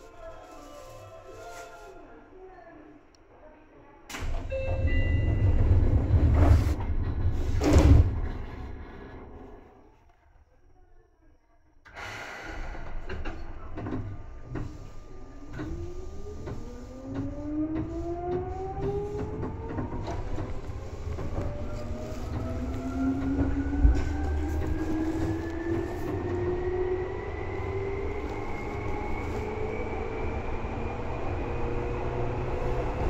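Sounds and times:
train motors whining: 0:12.5 - 0:33.0.

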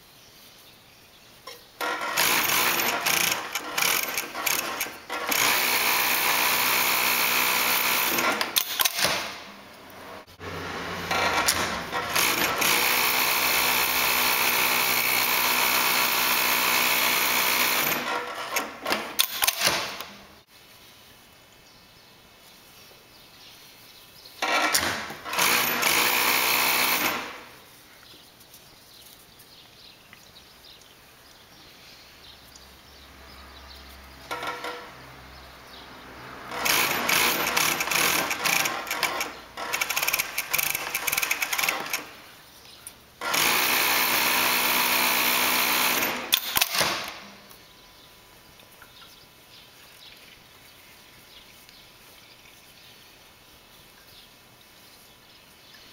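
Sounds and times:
industrial sewing machine stitching: 0:01.8 - 0:09.4, 0:10.4 - 0:20.0, 0:24.4 - 0:27.4, 0:36.4 - 0:42.1, 0:43.2 - 0:47.2.

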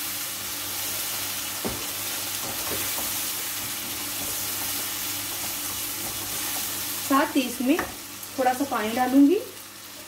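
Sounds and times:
food sizzling in oil: 0:00.0 - 0:10.0
spatula knocking wok: 0:01.6 - 0:06.7.

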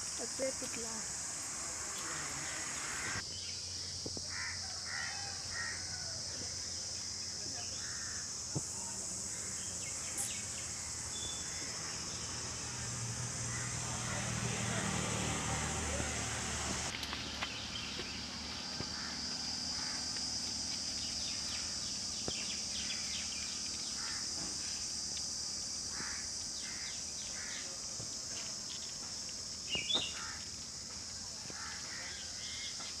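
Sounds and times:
high insect hiss: 0:00.0 - 0:33.0
bird chirps: 0:29.7 - 0:30.2.

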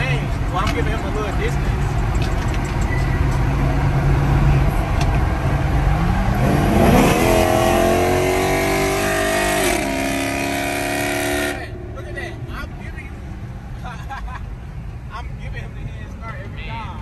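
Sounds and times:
car engine revving: 0:03.2 - 0:13.6.

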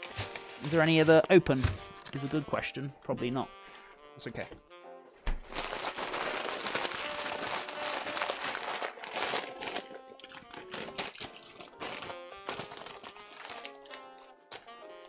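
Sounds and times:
plastic bag crinkling: 0:00.0 - 0:02.3, 0:05.4 - 0:14.8.

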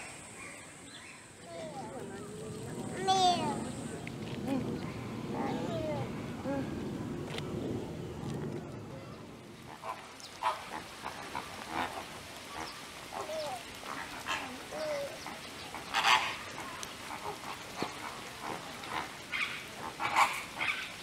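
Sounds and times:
flamingos honking: 0:09.1 - 0:21.0.

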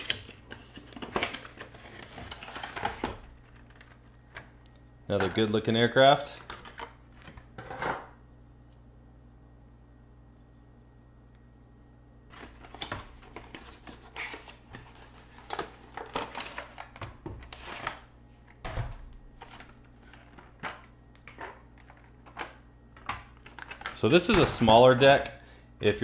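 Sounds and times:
stiff plastic tray crinkling: 0:12.3 - 0:25.2.

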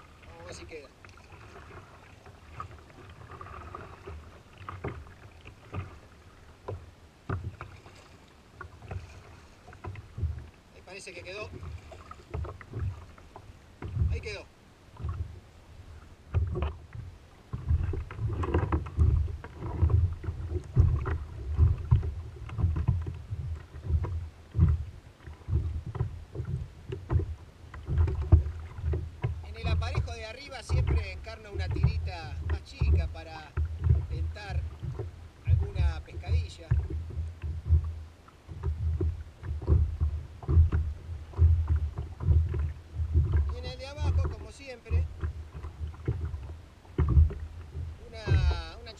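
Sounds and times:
waves slapping against kayak hull: 0:00.0 - 0:48.9.

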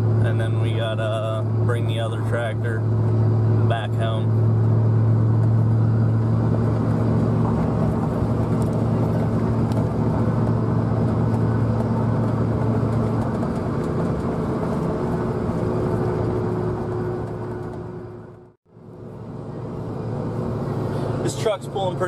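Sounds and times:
diesel engine drone: 0:00.0 - 0:22.0
road and tyre noise: 0:00.0 - 0:22.0.

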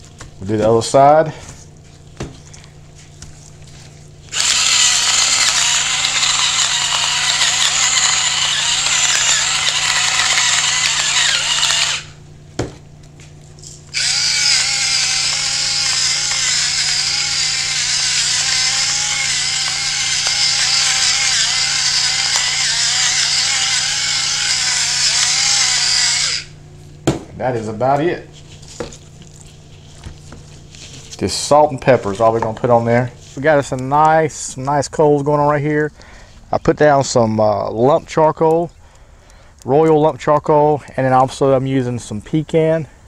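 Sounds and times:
electric pepper grinder grinding: 0:03.4 - 0:12.3, 0:13.0 - 0:27.0, 0:27.6 - 0:33.8.

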